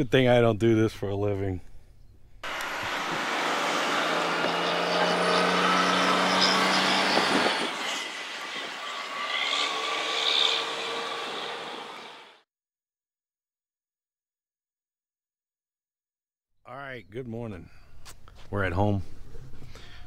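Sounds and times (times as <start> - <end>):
heavy truck engine and rolling: 2.4 - 12.4.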